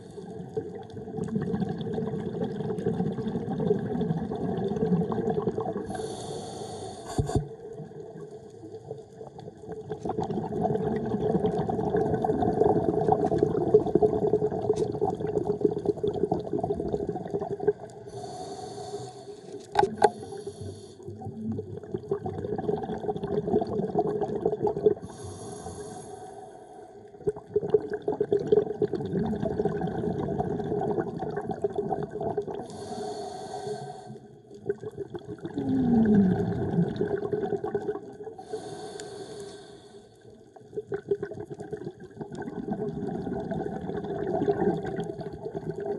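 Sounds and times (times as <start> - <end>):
bubbling exhalation underwater: 0.0 - 6.0, 9.6 - 18.1, 21.1 - 25.2, 27.1 - 32.8, 34.5 - 38.5, 40.5 - 45.9
regulator inhalation hiss: 5.9 - 7.4, 18.1 - 21.1, 25.0 - 26.5, 32.7 - 34.2, 38.4 - 40.2.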